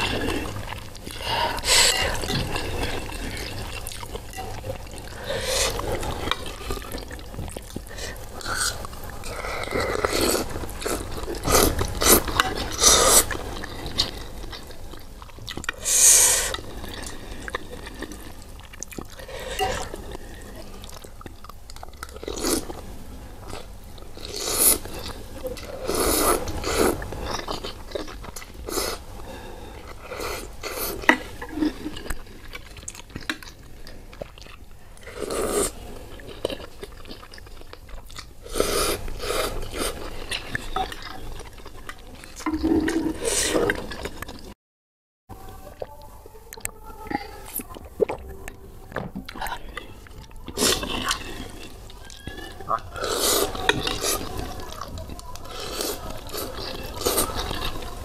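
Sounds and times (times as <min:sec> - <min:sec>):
slurping noodles: 0:00.0 - 0:14.8, 0:15.6 - 0:21.0, 0:23.5 - 0:32.4, 0:35.0 - 0:36.8, 0:38.4 - 0:44.5, 0:50.5 - 0:58.0
wet chewing: 0:00.0 - 0:44.6, 0:45.4 - 0:58.0.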